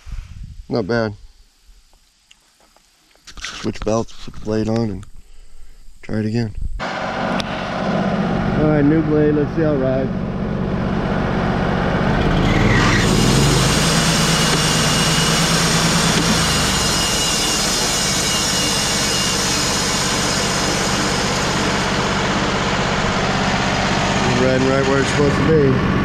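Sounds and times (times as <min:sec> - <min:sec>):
sawmill engine running: 0:06.8 - 0:26.0
bandsaw blade whirring: 0:12.1 - 0:25.6.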